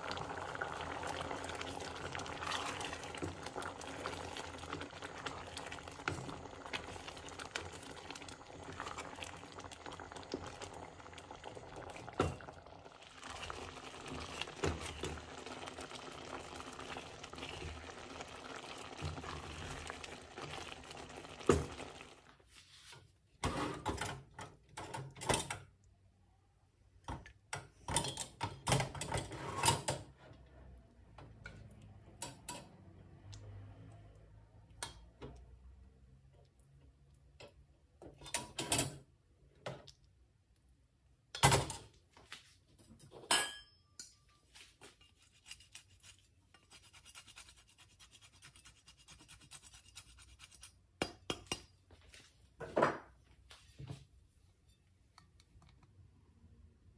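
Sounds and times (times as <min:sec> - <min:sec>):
soup boiling and bubbling: 0:00.0 - 0:22.5.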